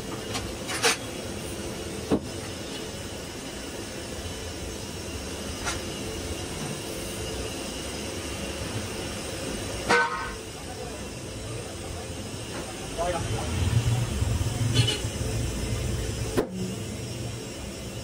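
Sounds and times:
workshop background hum: 0:00.0 - 0:18.0.

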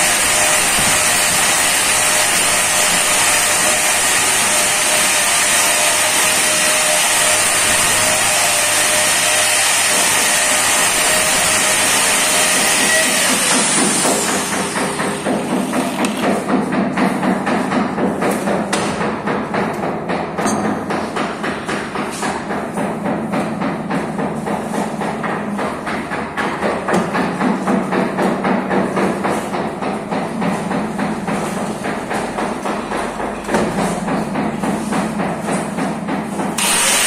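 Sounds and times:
grinder disc spinning down: 0:10.7 - 0:14.8, 0:36.6 - 0:37.0.

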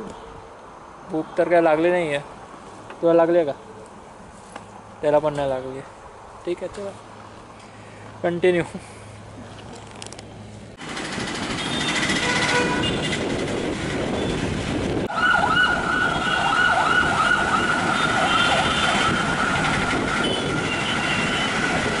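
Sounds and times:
city street traffic: 0:00.0 - 0:22.0
siren-like wailing tone: 0:15.1 - 0:21.6.

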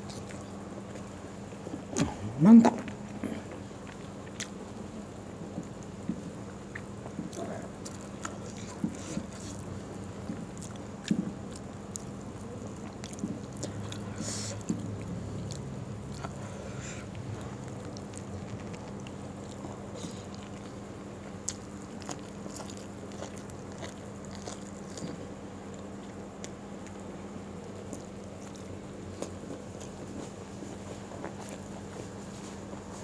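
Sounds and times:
steady low hum: 0:00.0 - 0:33.0
person chewing: 0:01.7 - 0:04.6, 0:05.5 - 0:33.0.

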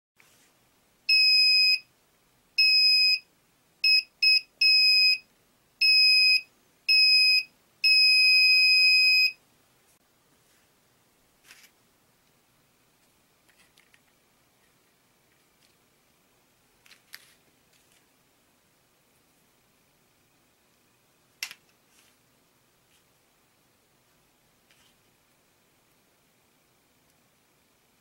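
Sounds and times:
electronic buzzer beeping: 0:02.6 - 0:03.2, 0:05.8 - 0:09.4.

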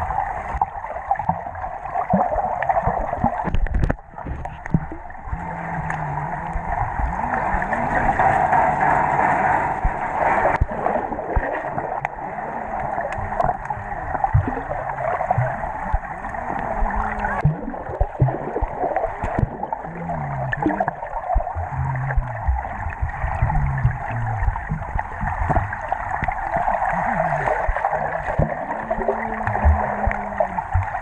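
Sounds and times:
muffled underwater churning and bubbling: 0:00.0 - 0:31.0.

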